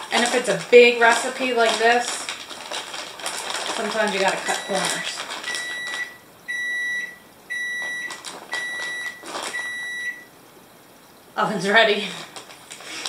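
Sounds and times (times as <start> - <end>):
plastic bag crinkling: 0.0 - 6.2, 7.8 - 10.3, 12.0 - 13.0
oven beeping: 4.4 - 10.3.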